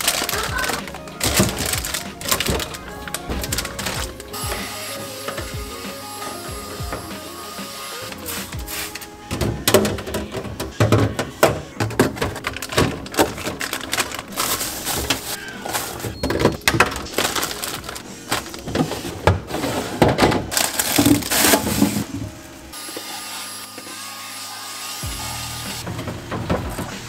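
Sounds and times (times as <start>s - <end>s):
plastic containers clattering: 0.0s - 7.2s, 8.1s - 22.6s, 25.7s - 27.0s
handheld vacuum whining: 0.0s - 9.6s, 22.8s - 26.0s.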